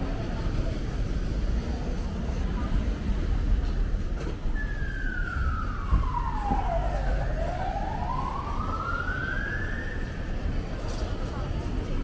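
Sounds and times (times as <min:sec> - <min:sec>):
low rumble of street traffic: 0:00.0 - 0:12.0
emergency siren wailing: 0:04.5 - 0:10.5.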